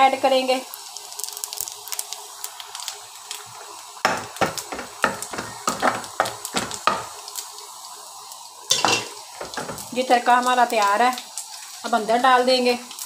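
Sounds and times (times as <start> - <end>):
steady sizzle: 0.0 - 13.0
spoon knocking and scraping pan: 4.0 - 7.2, 8.7 - 9.9.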